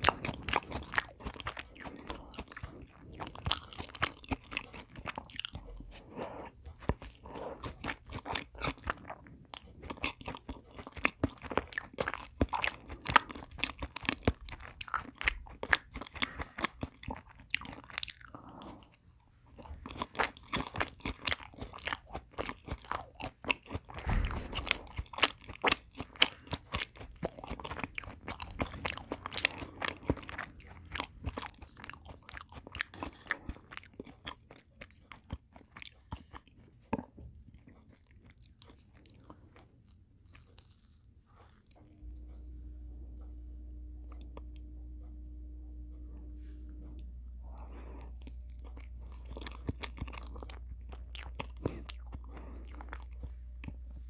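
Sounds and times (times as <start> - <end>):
close chewing with mouth clicks: 0.0 - 44.7, 46.1 - 54.0.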